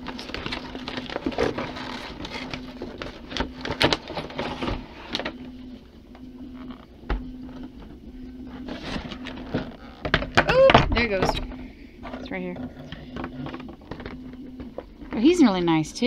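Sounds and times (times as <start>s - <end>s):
plastic packaging crinkling: 0.0s - 5.3s
low hum: 0.0s - 16.0s.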